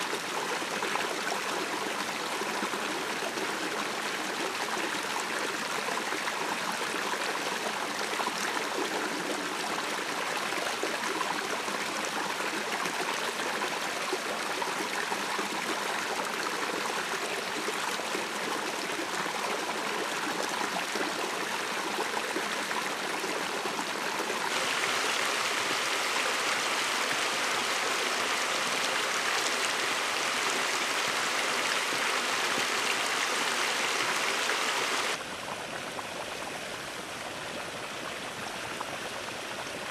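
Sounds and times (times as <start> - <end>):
water rushing over rocks: 23.5 - 36.4.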